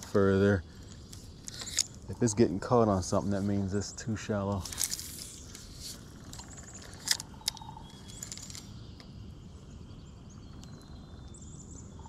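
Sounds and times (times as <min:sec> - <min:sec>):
outdoor background noise: 0:00.0 - 0:12.0
sharp clicks: 0:04.5 - 0:09.1.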